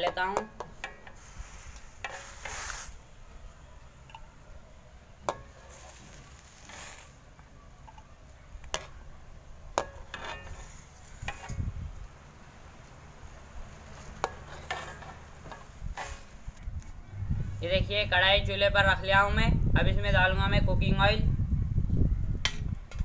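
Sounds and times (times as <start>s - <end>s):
metal spoon scraping metal pan: 0.7s - 3.0s, 5.3s - 7.2s, 9.8s - 11.7s, 13.8s - 16.4s.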